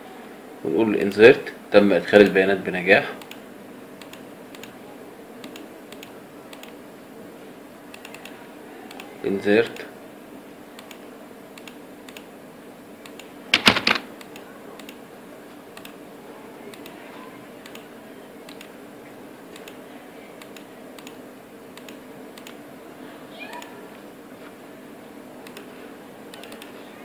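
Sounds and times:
keyboard keystrokes: 0:13.1 - 0:15.0.

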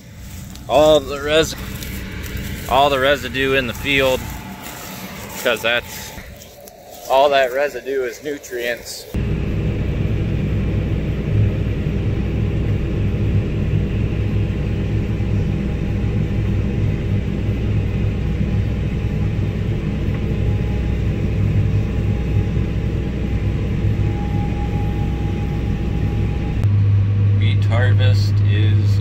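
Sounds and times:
combine harvester running: 0:00.0 - 0:29.0
tractor engine drone: 0:00.0 - 0:29.0.

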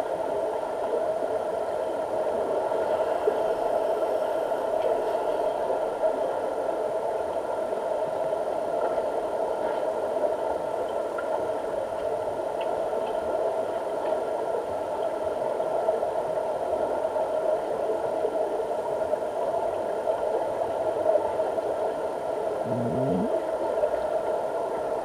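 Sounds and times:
underwater drone: 0:00.2 - 0:12.6, 0:21.2 - 0:24.8.

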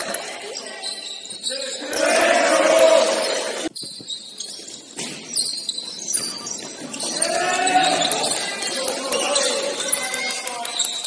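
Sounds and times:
players calling out: 0:00.0 - 0:03.7, 0:06.4 - 0:11.0
sneaker squeaks on floor: 0:00.0 - 0:11.0.

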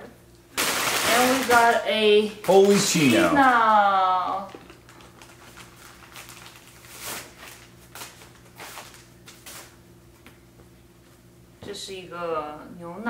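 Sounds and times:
faint steady hum: 0:00.0 - 0:13.0
plastic packaging rustling: 0:00.6 - 0:01.8, 0:02.4 - 0:03.6, 0:04.4 - 0:09.8.

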